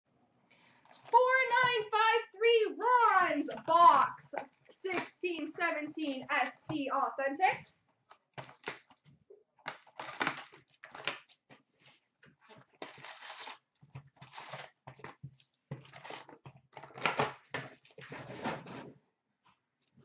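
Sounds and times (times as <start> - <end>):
wrappers crinkling and rustling: 0.8 - 1.2, 7.6 - 18.0
cardboard tearing: 8.1 - 11.5, 12.4 - 18.4.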